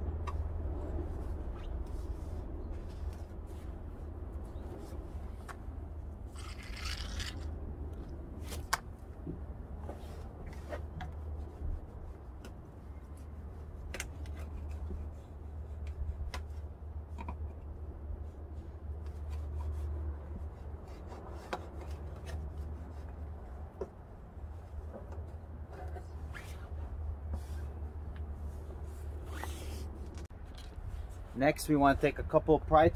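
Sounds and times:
steady low rumble: 0.0 - 10.5
floss rubbing and scraping: 6.3 - 7.6.

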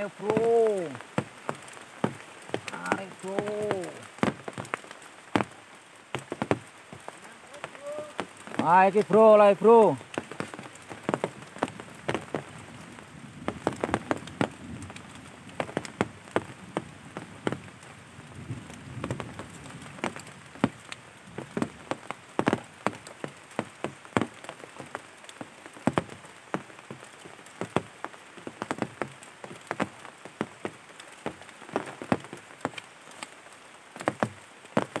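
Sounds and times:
faint steady hiss: 0.0 - 35.0
drops tapping a surface: 0.2 - 5.5, 10.0 - 12.5, 21.4 - 24.4.

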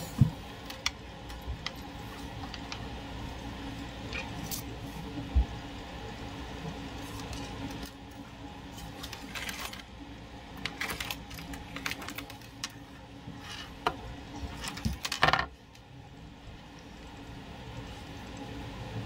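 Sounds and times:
parts clattering on tabletop: 14.6 - 15.5.

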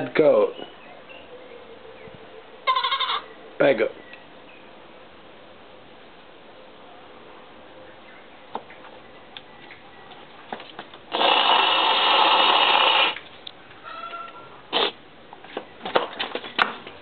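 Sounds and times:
goat bleating: 2.6 - 3.2.

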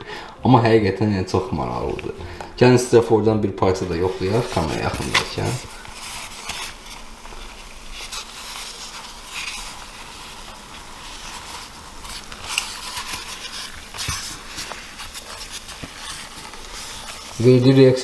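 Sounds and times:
foam fizzing and crackling: 3.8 - 18.0
styrofoam pushed into foam: 3.9 - 17.8.

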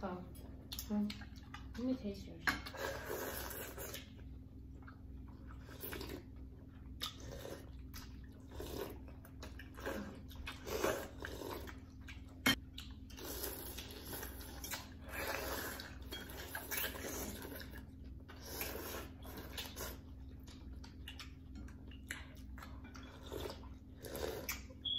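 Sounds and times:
chewing: 0.4 - 1.8, 2.6 - 24.9
people slurping noodles: 2.7 - 4.1, 5.6 - 6.3, 7.0 - 7.8, 8.4 - 9.1, 9.7 - 11.8, 13.1 - 20.0, 23.1 - 24.7.

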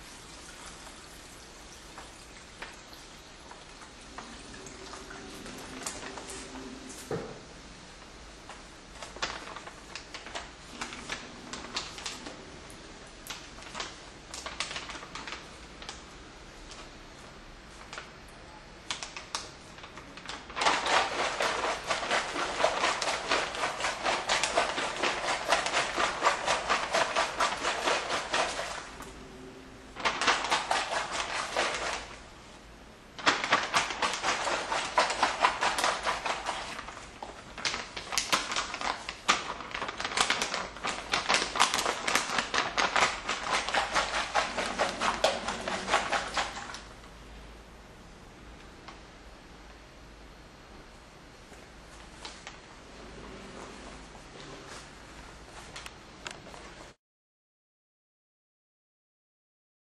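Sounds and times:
paper bag crinkling: 8.9 - 16.0, 19.0 - 29.0, 29.9 - 32.2, 33.2 - 46.9.

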